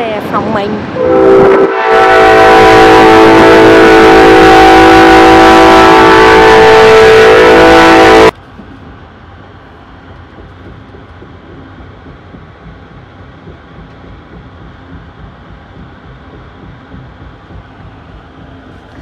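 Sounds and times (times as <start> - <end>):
train rumble from inside: 0.0 - 19.0
train horn: 1.0 - 8.4.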